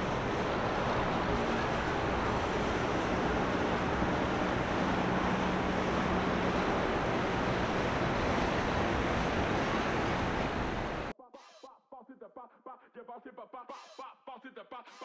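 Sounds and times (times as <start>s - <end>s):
boat engine low hum: 0.0s - 11.1s
rushing water: 0.0s - 11.1s
wind: 0.0s - 11.1s.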